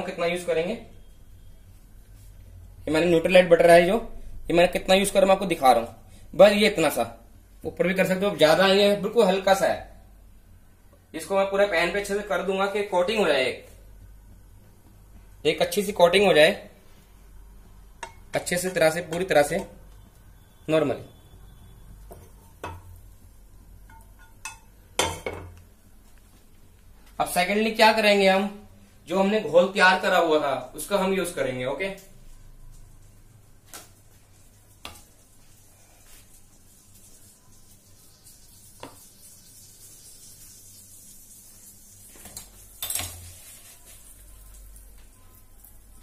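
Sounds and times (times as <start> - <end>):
kitchenware clatter: 23.8 - 25.6, 42.2 - 43.5
butter sizzling in a pan: 33.9 - 46.0.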